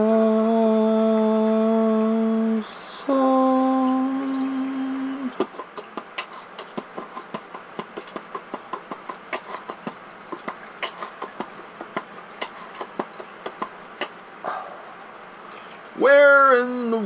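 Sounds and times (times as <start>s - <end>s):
mouth clicks and pops: 5.4s - 14.2s.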